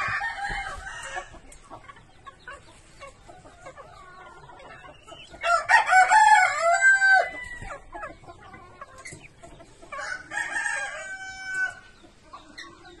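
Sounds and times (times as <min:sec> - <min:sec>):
rooster crowing: 0:05.5 - 0:07.7, 0:10.0 - 0:11.8.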